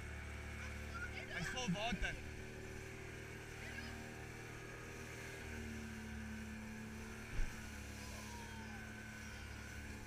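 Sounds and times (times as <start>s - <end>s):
boat motor running: 0.0s - 10.0s.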